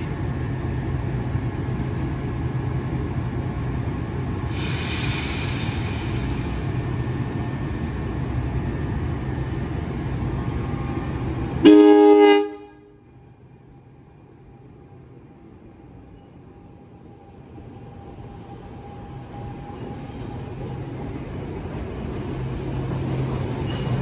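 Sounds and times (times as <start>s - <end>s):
electric train hum and rumble: 0.0s - 24.0s
air hiss: 4.4s - 6.6s
multi-tone train horn blast: 11.6s - 13.0s.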